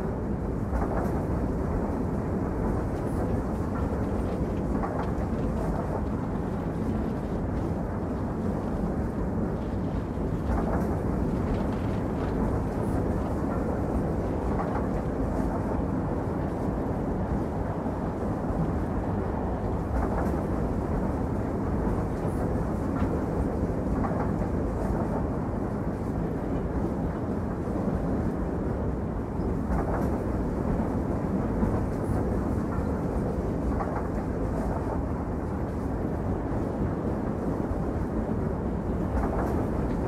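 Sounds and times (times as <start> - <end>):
train rumbling: 0.0 - 40.0.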